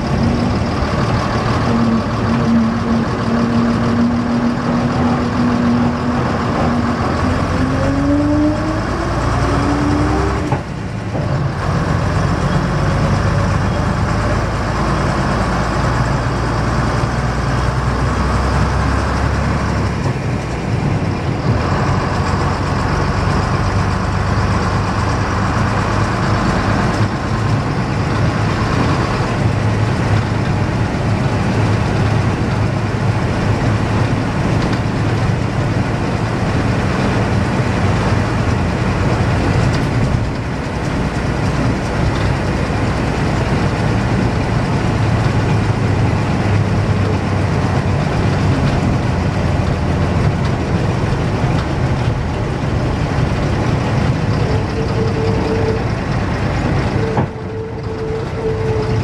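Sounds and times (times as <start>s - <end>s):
bus diesel engine running: 0.0s - 59.0s.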